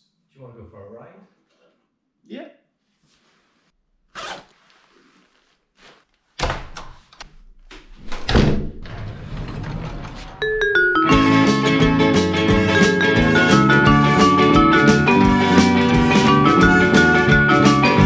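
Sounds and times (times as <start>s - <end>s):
steelpan-like plucked music: 10.4s - 18.0s.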